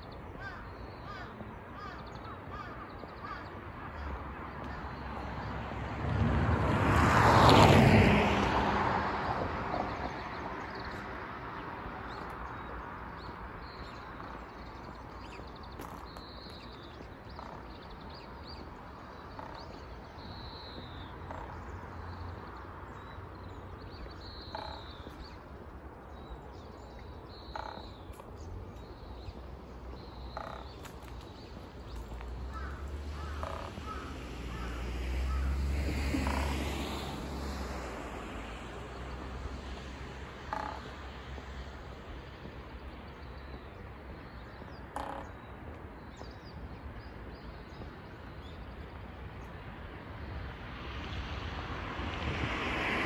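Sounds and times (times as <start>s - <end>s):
birds chirping: 0.0s - 5.6s, 9.6s - 49.7s
crow cawing: 0.4s - 4.9s, 32.5s - 35.6s.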